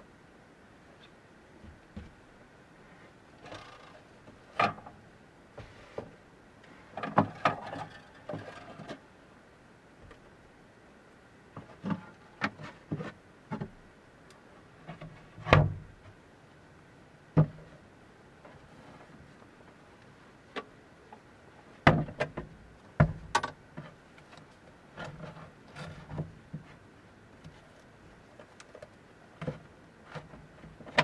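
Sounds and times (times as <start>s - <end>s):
knocks and clunks in wooden crate: 1.6s - 2.2s, 7.0s - 8.6s, 11.6s - 13.8s, 14.9s - 16.0s, 17.4s - 17.7s, 21.8s - 24.0s.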